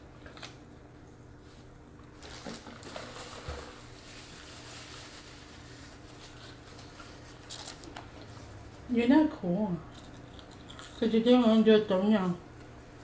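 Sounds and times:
paper wrapper rustling: 2.1s - 8.0s
quiet eating noises: 9.7s - 12.9s.

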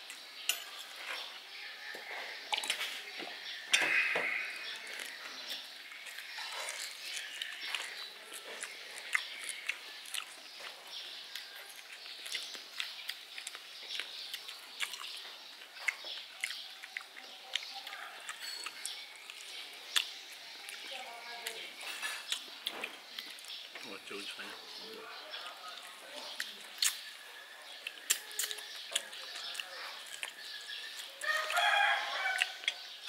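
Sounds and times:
birds chirping faintly: 0.0s - 33.0s
spoons clinking on bowls: 0.5s - 1.2s
dishes clattering: 3.7s - 4.6s
chewing mouth noises: 4.0s - 23.7s, 25.0s - 32.9s.

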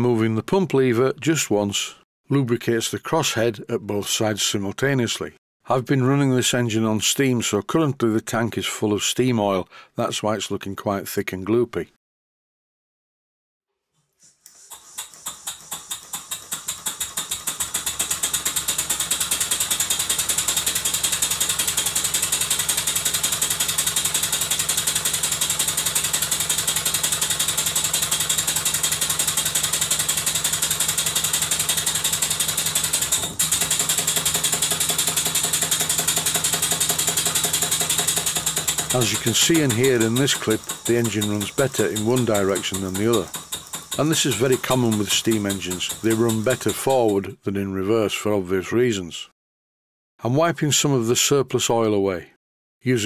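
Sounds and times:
model steam engine running: 14.5s - 47.3s.

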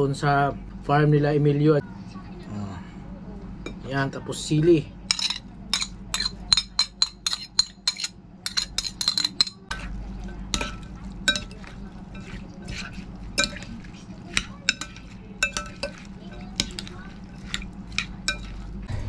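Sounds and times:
metal utensil clinking on plate: 5.1s - 18.7s
fork stirring against glass: 5.1s - 18.9s.

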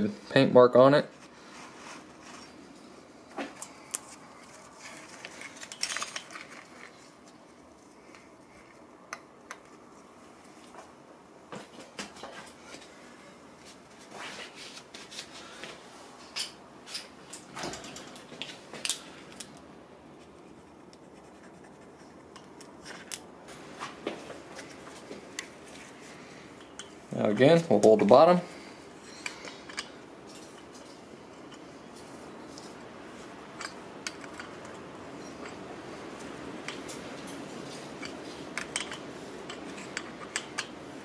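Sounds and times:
light clicks and taps of tools: 8.1s - 9.8s, 26.6s - 28.2s, 29.1s - 31.6s, 33.6s - 35.6s, 36.2s - 40.8s.

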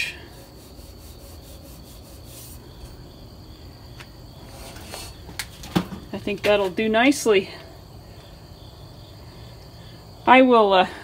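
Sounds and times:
high insect trill: 0.0s - 11.0s
hand rubbing on camera: 0.3s - 2.7s.

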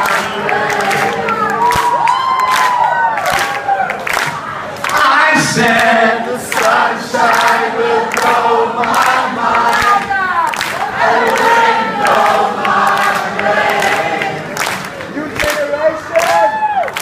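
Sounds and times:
crowd singing along: 0.0s - 2.0s, 4.6s - 15.2s.

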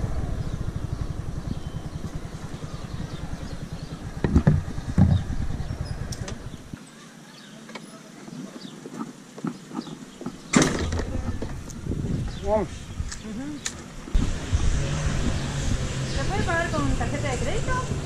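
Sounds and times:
scooter engine running: 0.0s - 6.8s
thumps: 4.2s - 5.4s.

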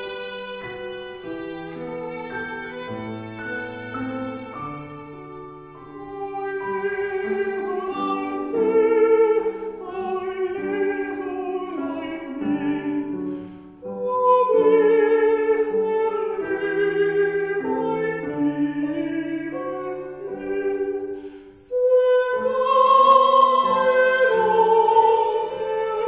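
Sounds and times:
piano: 0.0s - 26.0s
violin: 0.0s - 26.0s
countertenor singing: 21.6s - 26.0s.

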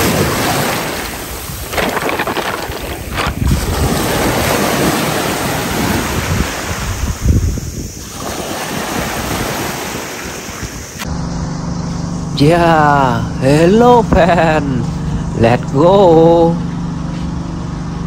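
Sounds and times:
sea waves washing up beach: 0.0s - 11.0s
wind buffeting microphone: 0.0s - 11.0s
low steady hum: 11.0s - 18.0s.

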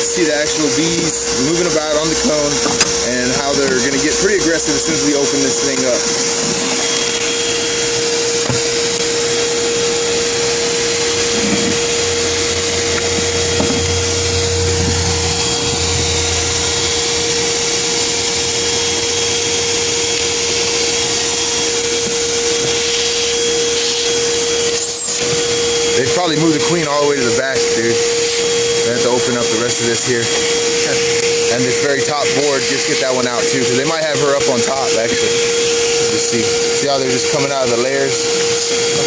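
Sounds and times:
low hum: 0.0s - 26.3s
loud rushing hiss: 0.0s - 39.0s
machine motor whine: 0.0s - 39.0s.

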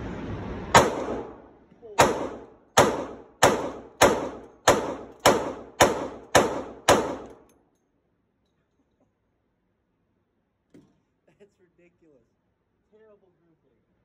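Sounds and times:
pistol shots echoing indoors: 0.8s - 1.4s, 2.0s - 7.4s.

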